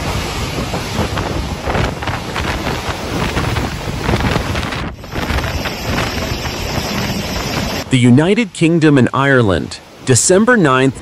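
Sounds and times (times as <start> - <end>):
wind blasting the microphone: 0.0 - 8.0
waves breaking over a seawall: 0.0 - 11.0.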